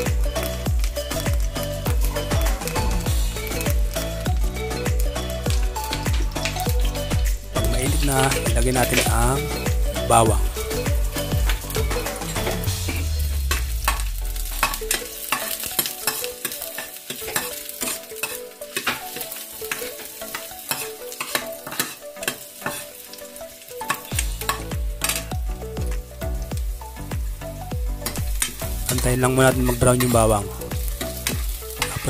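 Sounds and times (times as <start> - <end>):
garlic sizzling in oil: 0.0 - 32.0
metal spoon stirring in pan: 13.5 - 25.4, 29.6 - 32.0.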